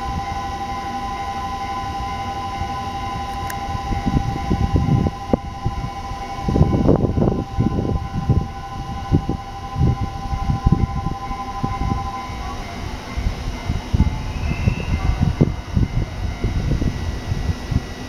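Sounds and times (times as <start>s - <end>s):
level crossing bell ringing: 0.0s - 14.3s
train wheels rumbling: 0.0s - 18.0s.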